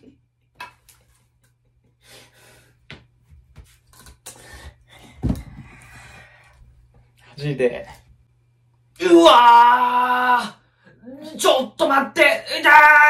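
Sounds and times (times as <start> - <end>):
faint steady hum: 0.0 - 13.0
breathing: 2.0 - 2.8, 4.3 - 7.4.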